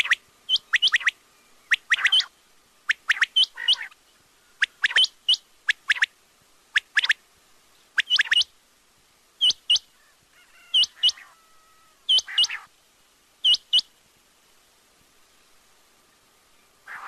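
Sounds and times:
quail whistled calls: 0.0 - 2.3, 2.9 - 4.0, 4.6 - 6.1, 6.7 - 7.2, 8.0 - 8.5, 9.4 - 12.7, 13.4 - 13.9.

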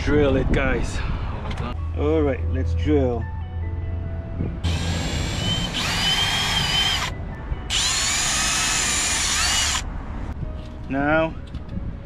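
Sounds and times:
power drill whining: 4.7 - 7.1, 7.7 - 9.8.

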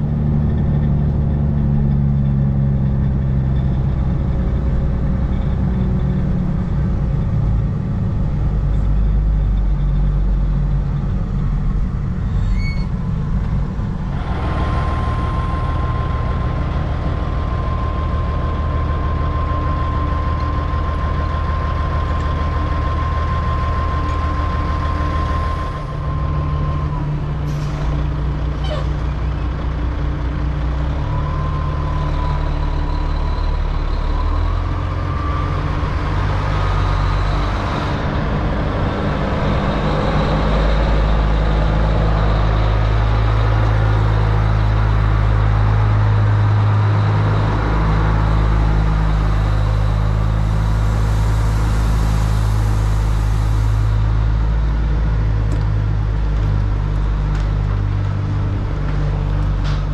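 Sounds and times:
truck engine low rumble: 0.0 - 59.9
steady high whine: 31.2 - 56.2.

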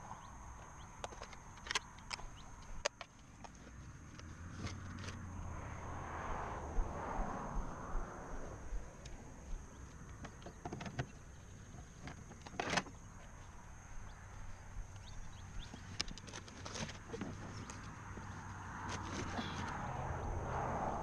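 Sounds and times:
fishing gear clicking on plastic kayak: 0.6 - 5.2, 9.9 - 13.4, 14.9 - 19.8.

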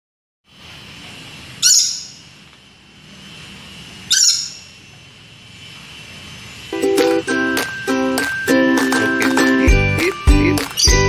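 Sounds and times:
background hiss: 0.5 - 10.9
parrot harsh screeches: 1.6 - 2.3, 4.1 - 4.7.

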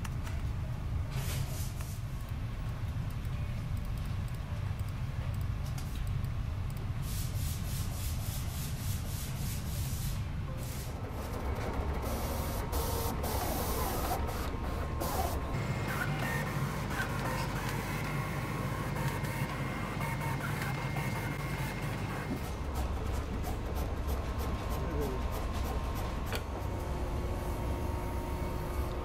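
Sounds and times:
low machine hum: 10.2 - 29.0.

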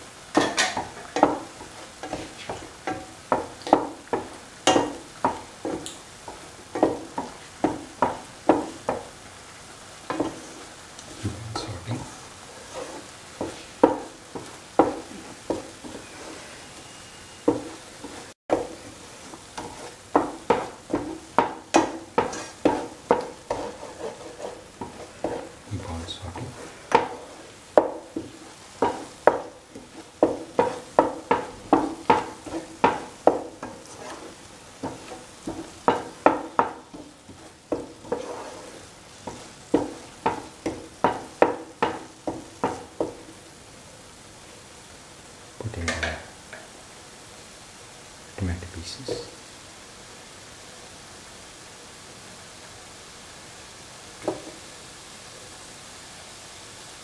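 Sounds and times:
faint sizzle: 0.0 - 57.0
spoon scraping a pan: 0.3 - 9.1, 10.0 - 43.3.

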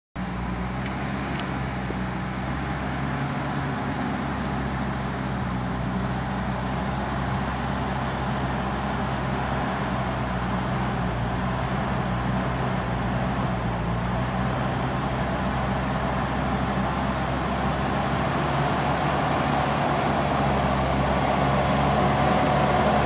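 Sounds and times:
diesel engine running under load: 0.2 - 23.0.

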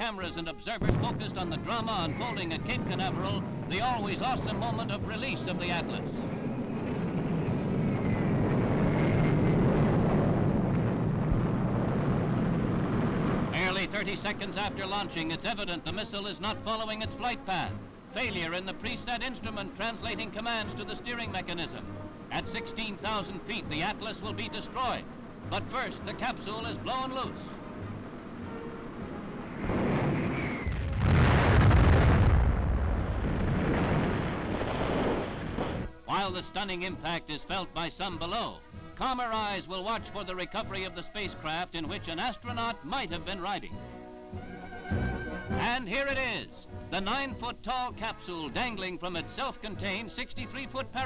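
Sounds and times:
rocket engines rumbling: 0.8 - 16.3
rushing noise: 1.0 - 14.6, 25.8 - 35.9.

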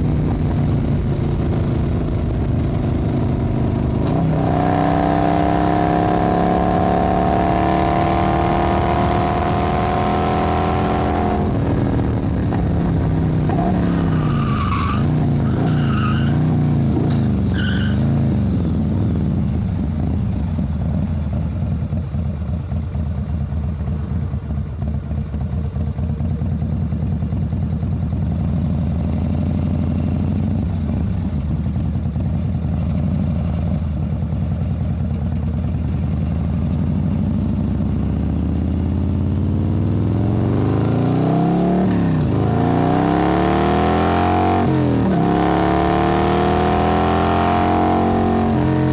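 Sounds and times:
engine revving: 0.0 - 18.2, 39.5 - 48.9.

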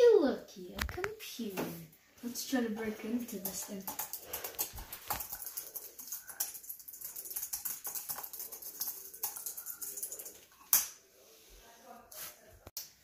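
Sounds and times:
computer keyboard typing: 3.3 - 10.7.

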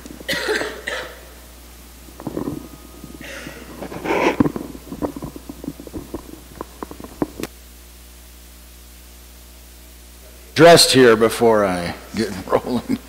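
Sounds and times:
steady low hum: 0.0 - 13.0
microphone handling rustle: 2.1 - 7.5
breathy puffs: 2.2 - 5.2.

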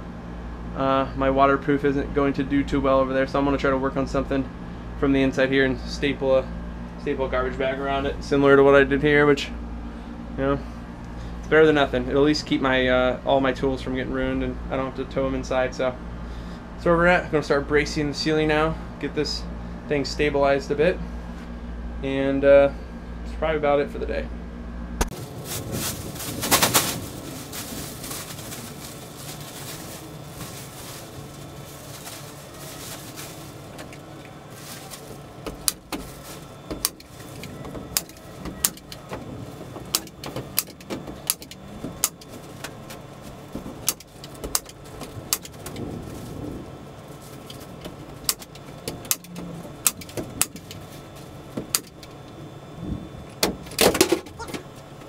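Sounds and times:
plastic bag crinkling: 25.1 - 38.4.

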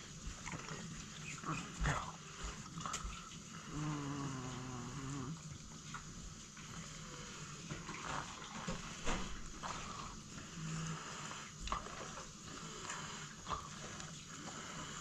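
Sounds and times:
low drawn-out vocal sound: 1.3 - 5.5.

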